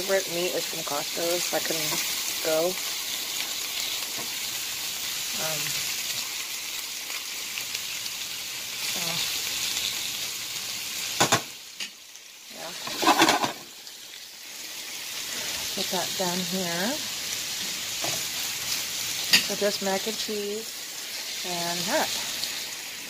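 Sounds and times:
steak sizzling in frying pan: 0:00.0 - 0:23.0
pan clattering on stovetop: 0:11.2 - 0:11.5, 0:12.8 - 0:13.7.

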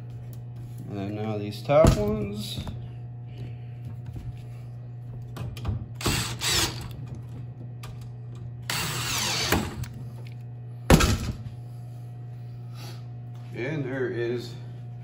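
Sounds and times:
cordless drill driving screws: 0:06.0 - 0:07.0, 0:08.7 - 0:09.9.

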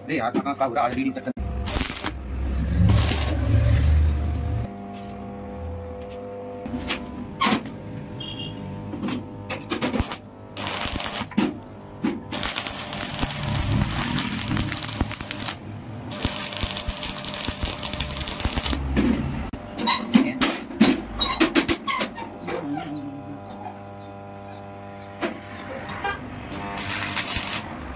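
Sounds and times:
arc welding crackling and hissing: 0:01.4 - 0:04.7, 0:09.7 - 0:19.6, 0:22.7 - 0:27.9.

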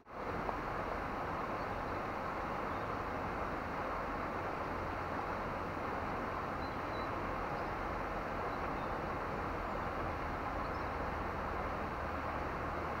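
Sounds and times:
water rushing through dam: 0:00.0 - 0:13.0
faint high bird chirps: 0:06.6 - 0:07.8.

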